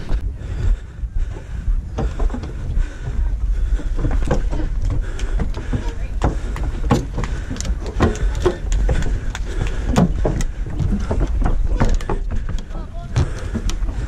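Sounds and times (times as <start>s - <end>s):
wind buffeting microphone: 0.0s - 14.0s
thumps and knocks: 3.8s - 14.0s.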